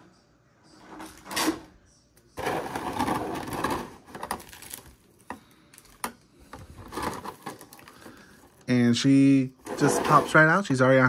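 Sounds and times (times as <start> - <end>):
plastic packaging rustling: 2.4 - 10.6.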